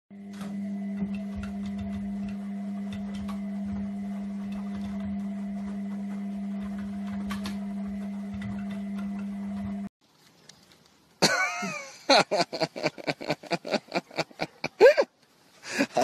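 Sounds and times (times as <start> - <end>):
washing machine running: 0.1 - 9.9.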